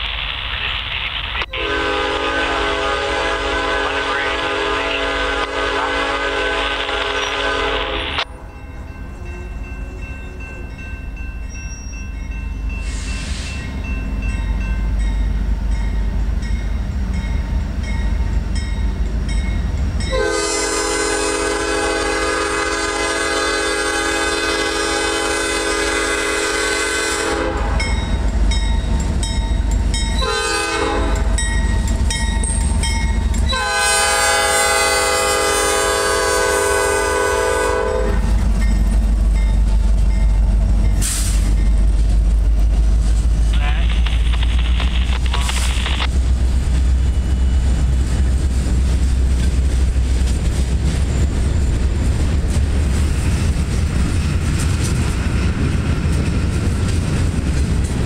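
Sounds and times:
locomotive engine rumble: 0.0s - 58.0s
locomotive air horn blasts: 1.5s - 8.4s, 20.1s - 27.9s, 30.2s - 31.4s, 33.5s - 38.3s.

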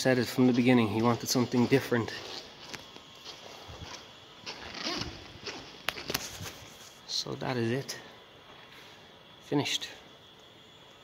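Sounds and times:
quiet footsteps: 0.0s - 7.1s
camera handling rustle: 3.9s - 7.0s.

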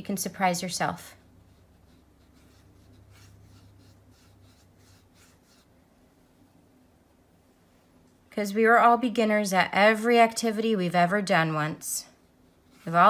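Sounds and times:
low steady hum: 0.0s - 13.0s
brush swishing across paper: 1.1s - 8.0s, 12.1s - 13.0s.

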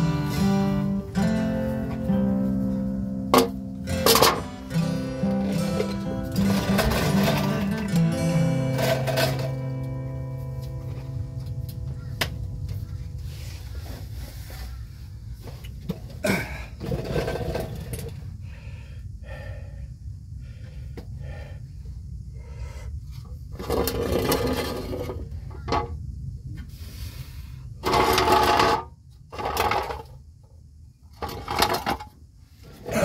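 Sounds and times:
steady low hum: 0.0s - 33.0s
metal clinks and scrapes: 3.4s - 9.8s.

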